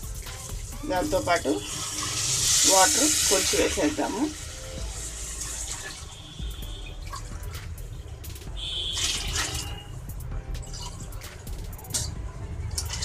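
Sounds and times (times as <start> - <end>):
water pouring and splashing: 0.0 - 13.0
steel vessels clinking: 8.9 - 10.0, 10.6 - 13.0.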